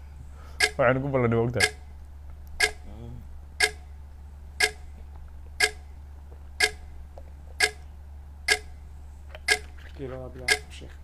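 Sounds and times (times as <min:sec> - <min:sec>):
steady low hum: 0:00.0 - 0:11.0
countdown clock ticking: 0:00.6 - 0:00.9, 0:01.6 - 0:01.8, 0:02.5 - 0:02.9, 0:03.6 - 0:03.9, 0:04.6 - 0:04.9, 0:05.6 - 0:05.9, 0:06.6 - 0:06.9, 0:07.6 - 0:08.8, 0:09.4 - 0:09.7, 0:10.4 - 0:10.7.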